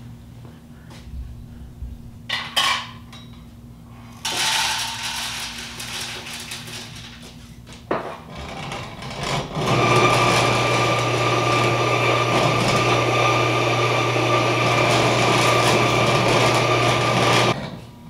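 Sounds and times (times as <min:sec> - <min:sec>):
kernels rattling into metal hopper: 0:04.2 - 0:07.3
grain mill grinding: 0:04.3 - 0:07.0, 0:08.3 - 0:17.6.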